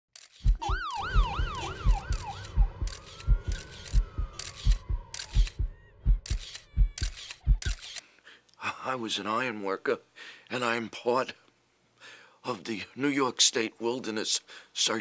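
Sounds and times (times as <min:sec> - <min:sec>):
rhythmic thud with sharp click: 0:00.3 - 0:07.8
emergency vehicle siren: 0:00.6 - 0:07.0.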